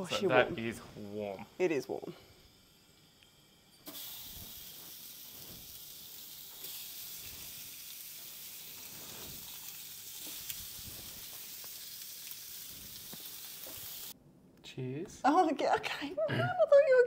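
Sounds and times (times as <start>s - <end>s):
steaks sizzling on a grill: 0.0s - 14.2s.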